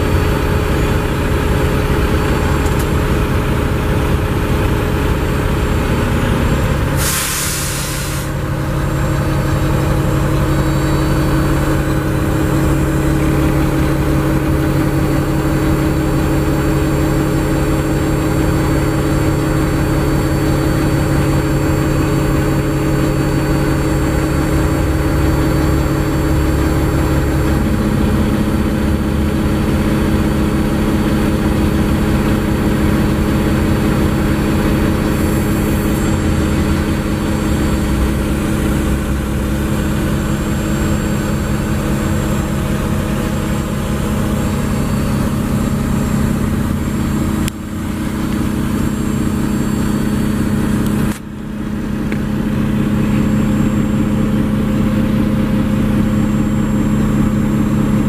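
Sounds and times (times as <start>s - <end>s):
diesel engine idling: 0.0s - 58.0s
air hiss burst: 7.0s - 8.4s.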